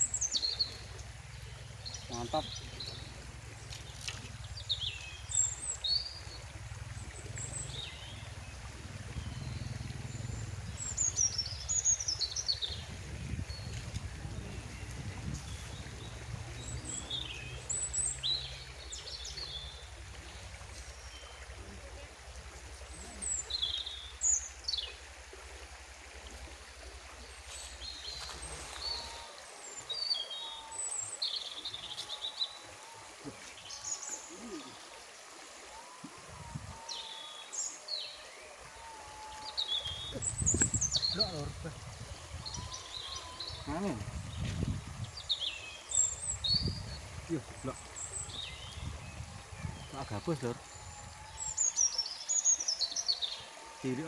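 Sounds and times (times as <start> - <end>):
river rushing: 0.0 - 54.0
small birds chirping: 39.4 - 53.4
small birds chirping and whistling: 39.5 - 41.6.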